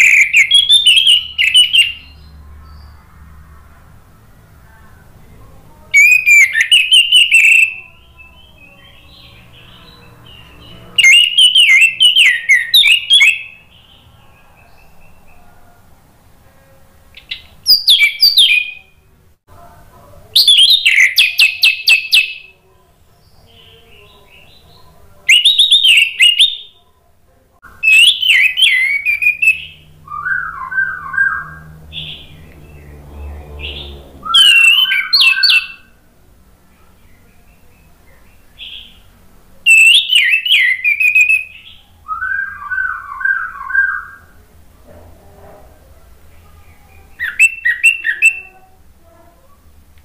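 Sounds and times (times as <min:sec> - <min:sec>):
thrush singing whistled phrases: 0:00.0 - 0:02.9, 0:05.9 - 0:09.4, 0:11.0 - 0:14.1, 0:17.2 - 0:19.0, 0:20.4 - 0:22.5, 0:25.3 - 0:26.8, 0:27.8 - 0:32.4, 0:33.7 - 0:36.0, 0:39.7 - 0:44.4, 0:47.1 - 0:48.5.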